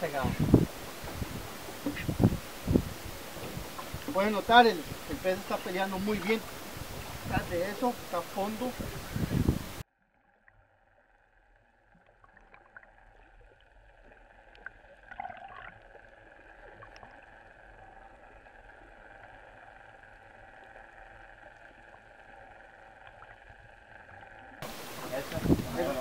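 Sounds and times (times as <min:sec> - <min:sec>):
muffled underwater hum: 0:00.0 - 0:14.9
water gurgle: 0:00.0 - 0:26.0
underwater clicks: 0:00.5 - 0:07.3.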